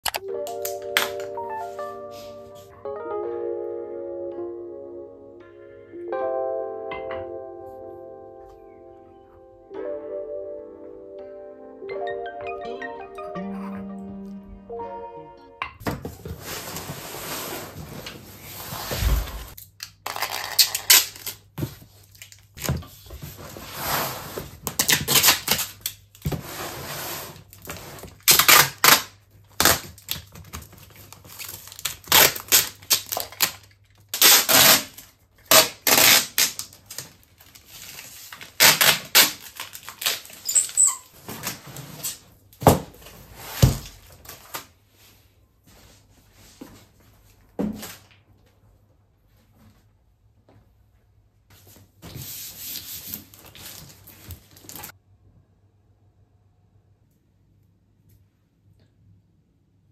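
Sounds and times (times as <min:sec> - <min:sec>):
packing tape ripping: 0:19.5 - 0:21.5, 0:24.6 - 0:26.0, 0:27.6 - 0:42.2.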